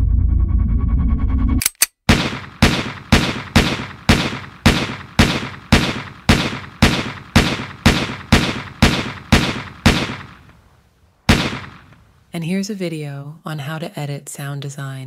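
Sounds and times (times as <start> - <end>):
gunshots with ringing: 2.1 - 10.6, 11.3 - 12.1.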